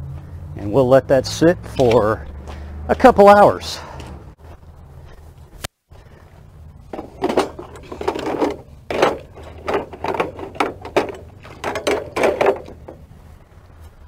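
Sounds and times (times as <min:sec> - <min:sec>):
water sloshing and splashing in tub: 0:06.9 - 0:13.0.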